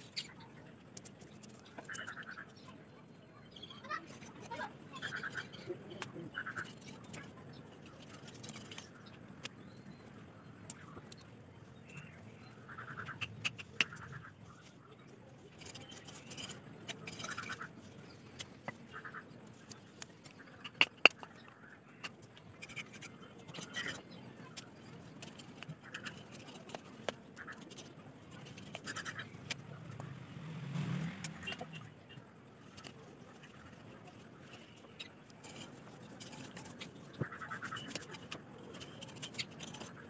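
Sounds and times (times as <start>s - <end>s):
knife scraping bamboo strips: 1.0s - 2.4s, 3.8s - 9.0s, 15.5s - 17.7s, 19.6s - 29.6s, 30.8s - 32.0s, 32.6s - 40.0s.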